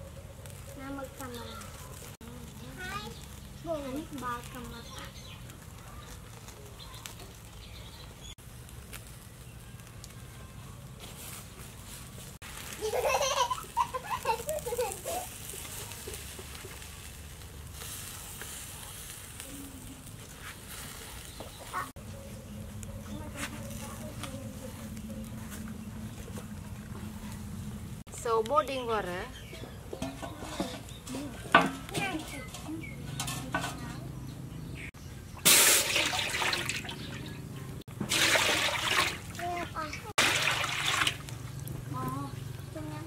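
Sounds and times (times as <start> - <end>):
wood fire hissing: 0.0 - 29.9, 35.4 - 37.0, 37.8 - 43.0
faint fire crackles: 0.0 - 43.0
water splashing into metal pot: 35.4 - 41.4.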